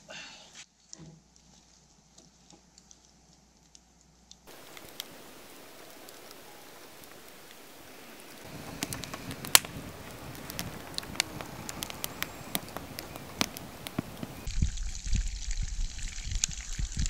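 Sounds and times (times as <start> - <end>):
sharp crackles and pops: 0.8 - 17.0
steady hiss: 4.5 - 14.5.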